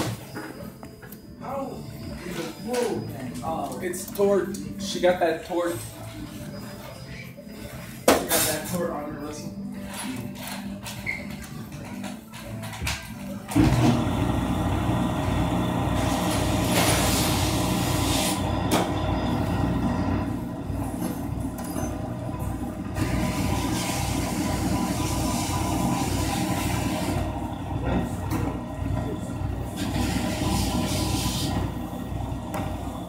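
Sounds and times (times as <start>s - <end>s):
loud machine rumble: 13.5s - 33.0s
steady machine tones: 13.6s - 33.0s.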